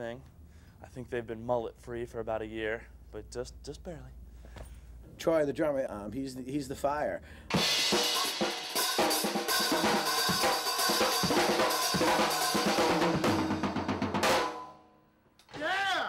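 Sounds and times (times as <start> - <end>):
rock drum kit played hard: 7.5 - 14.7.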